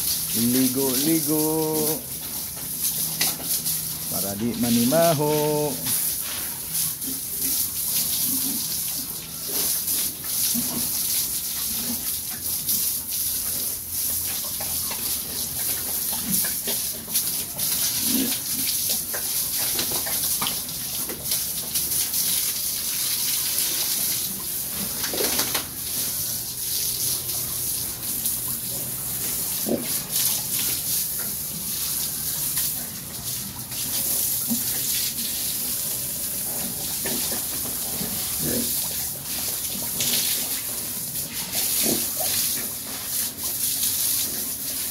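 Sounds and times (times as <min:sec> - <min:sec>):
hose spraying water on concrete: 0:00.0 - 0:44.9
pigs grunting: 0:37.2 - 0:38.8.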